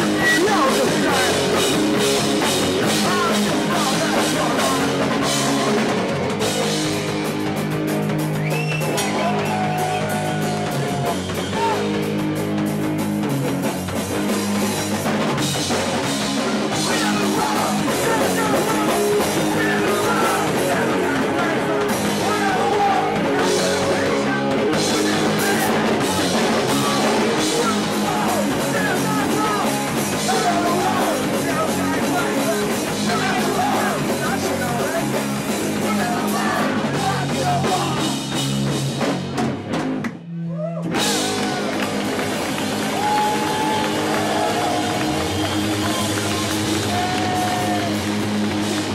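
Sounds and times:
drum kit: 0.0s - 48.9s
guitar: 0.0s - 48.9s
punk band playing: 0.0s - 48.9s
person singing into microphone: 16.7s - 34.2s.

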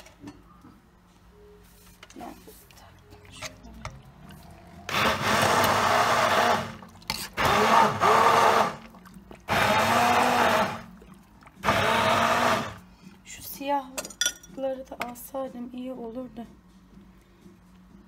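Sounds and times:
immersion blender motor: 4.9s - 6.8s, 7.4s - 8.8s, 9.5s - 10.8s, 11.6s - 12.8s.

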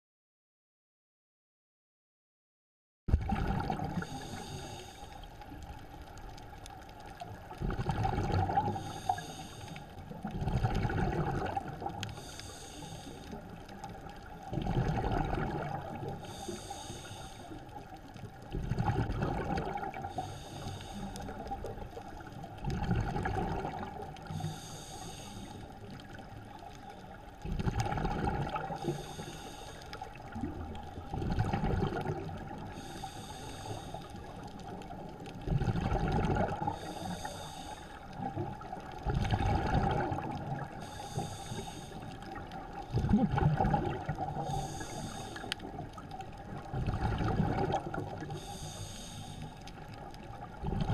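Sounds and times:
exhaust bubbles rushing: 3.1s - 4.0s, 14.5s - 15.9s, 31.1s - 32.3s, 43.0s - 44.3s, 46.7s - 48.2s
diver inhaling through regulator: 3.9s - 5.4s, 8.0s - 10.1s, 11.2s - 13.6s, 14.8s - 17.8s, 19.8s - 21.7s, 24.2s - 26.0s, 28.0s - 30.5s, 32.5s - 34.4s, 35.7s - 38.3s, 40.0s - 43.3s, 44.2s - 45.8s, 48.1s - 49.8s
faint steady tone: 8.5s - 10.3s, 11.5s - 14.4s, 15.6s - 18.5s, 23.6s - 27.4s, 28.5s - 31.1s, 36.4s - 38.9s, 40.0s - 42.9s, 43.6s - 46.8s.

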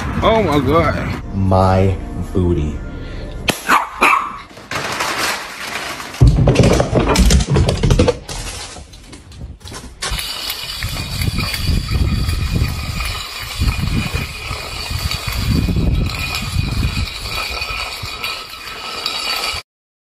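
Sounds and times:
metal bowl scraping on concrete: 9.6s - 19.6s.

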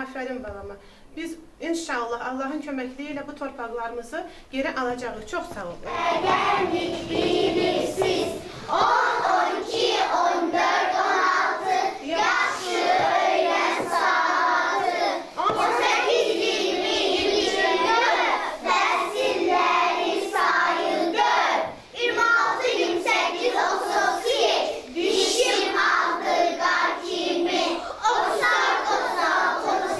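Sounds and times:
children singing in unison: 5.9s - 29.9s.

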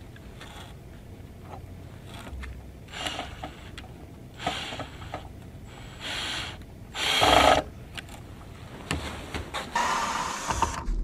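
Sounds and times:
cordless drill driving screws: 2.9s - 3.8s, 4.4s - 7.7s.

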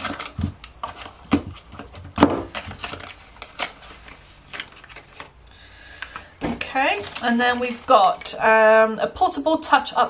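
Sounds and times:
packaging clicks and knocks: 0.0s - 5.3s.

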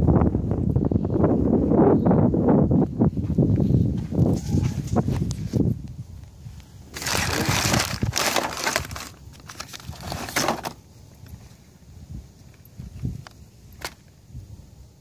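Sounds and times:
wind rumbling on microphone: 0.0s - 15.0s
plastic crinkling and rustling: 6.9s - 10.8s.

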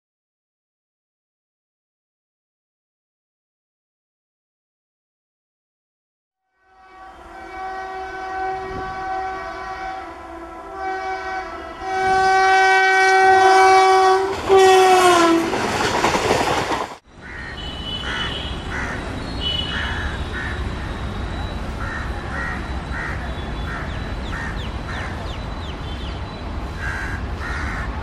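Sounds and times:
locomotive air horn: 6.4s - 15.6s, 17.5s - 18.7s
passing train rush and rattle: 6.7s - 28.0s
train rumble: 7.0s - 28.0s.

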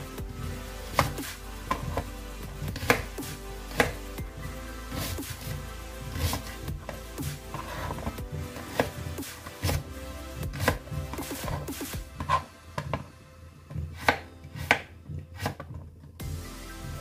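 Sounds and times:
knife chopping on plastic board: 0.9s - 2.0s, 2.7s - 3.1s, 3.7s - 4.0s, 7.5s - 8.9s, 10.6s - 13.0s, 14.0s - 15.8s.

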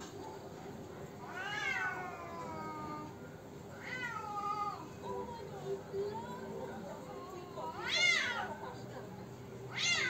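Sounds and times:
cats yowling: 1.2s - 4.9s, 7.7s - 8.6s, 9.7s - 10.0s.

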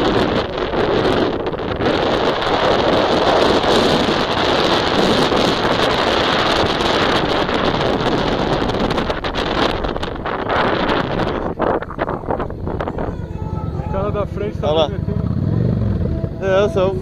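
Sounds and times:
motorcycle engine running: 0.0s - 17.0s
wind rushing over microphone: 0.0s - 17.0s.

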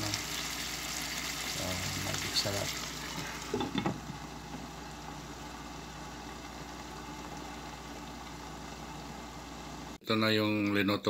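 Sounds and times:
muffled hiss of simmering pan: 0.0s - 10.0s.

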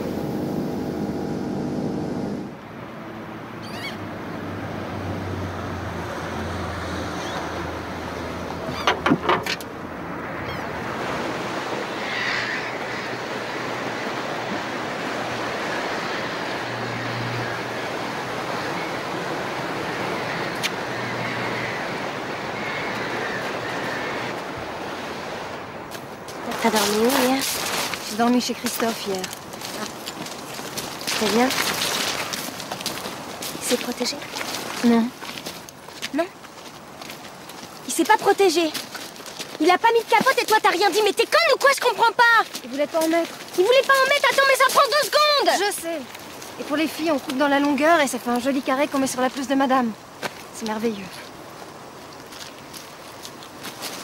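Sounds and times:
low motor hum: 0.0s - 2.6s
water noise: 0.0s - 54.0s
wind: 0.0s - 54.0s
sea waves washing against rocks: 10.8s - 35.8s.

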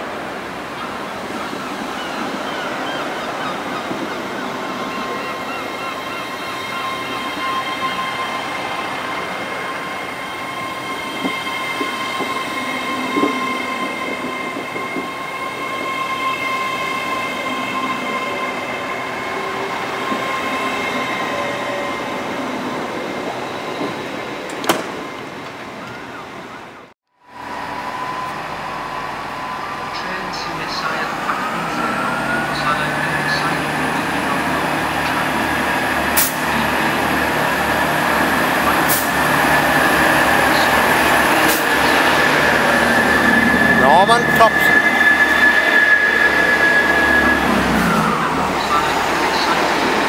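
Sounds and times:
train wheels rumbling: 27.4s - 50.0s
sustained high tone: 39.6s - 48.8s.

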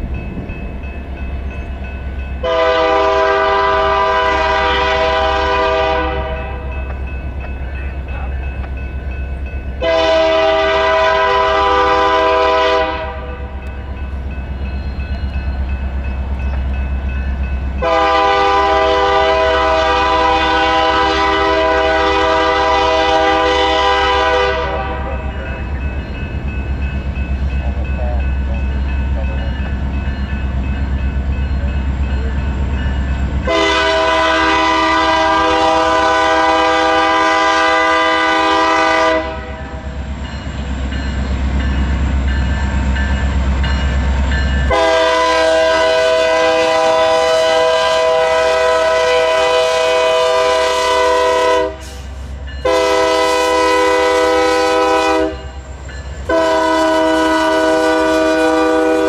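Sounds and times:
low locomotive rumble: 0.0s - 59.0s
locomotive air horn blasts: 2.4s - 6.7s, 9.8s - 13.6s, 17.8s - 25.3s, 33.4s - 39.8s, 44.7s - 55.5s, 56.3s - 59.0s.

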